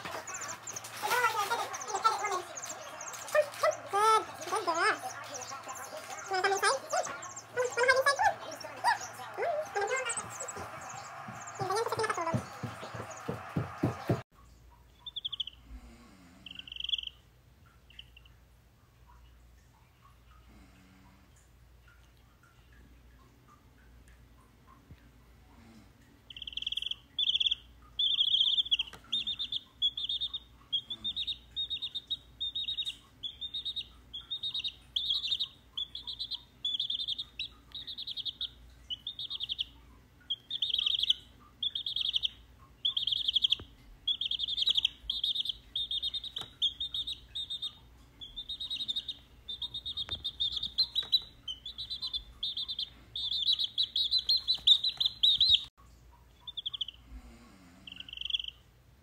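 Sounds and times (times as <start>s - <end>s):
chick peeping: 0.0s - 14.2s, 15.0s - 15.6s, 16.4s - 17.2s, 26.3s - 55.7s, 56.4s - 57.0s, 57.9s - 58.6s.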